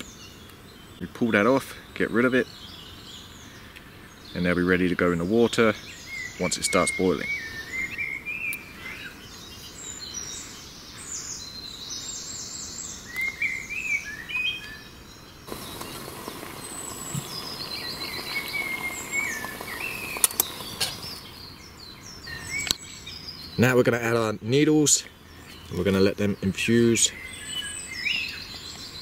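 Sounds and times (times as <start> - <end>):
birds chirping and trilling: 0.0 - 29.0
steady background hiss: 0.0 - 29.0
sharp clicks: 15.5 - 21.2.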